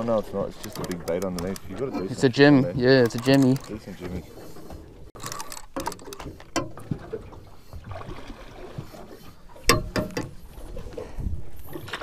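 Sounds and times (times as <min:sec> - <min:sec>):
water lapping against hull: 0:00.0 - 0:12.0
knocks on boat: 0:09.7 - 0:10.4.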